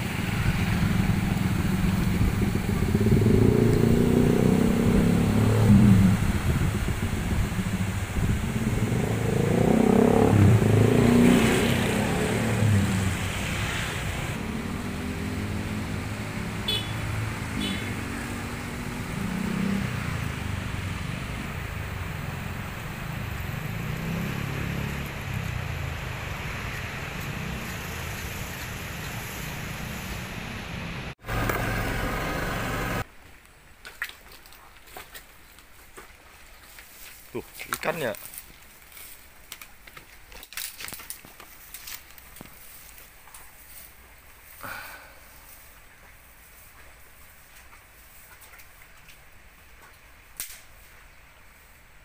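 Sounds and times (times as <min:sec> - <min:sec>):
motor vehicles passing: 0:00.0 - 0:33.1, 0:43.6 - 0:45.7.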